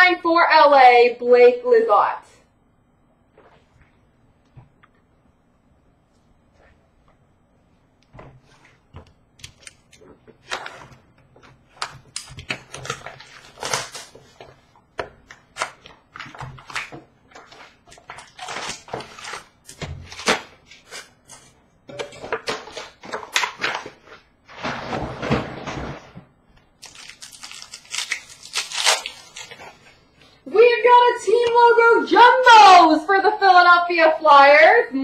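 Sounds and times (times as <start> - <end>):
foil wrappers crinkling: 11.6 - 21.6, 26.8 - 30.0.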